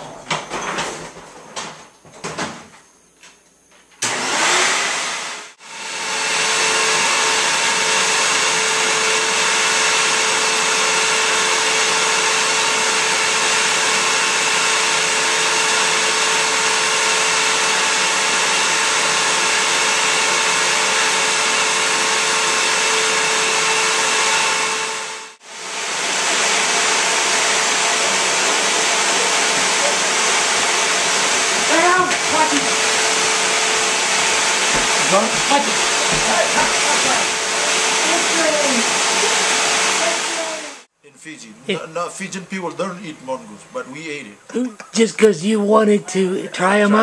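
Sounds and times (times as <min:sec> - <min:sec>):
upright vacuum cleaner humming: 0:04.0 - 0:40.9.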